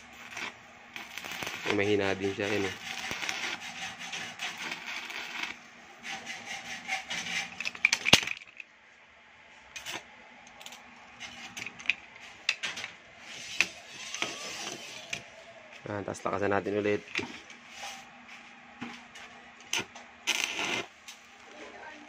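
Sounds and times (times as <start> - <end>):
welding arc crackling: 0.0 - 5.7, 19.7 - 21.3.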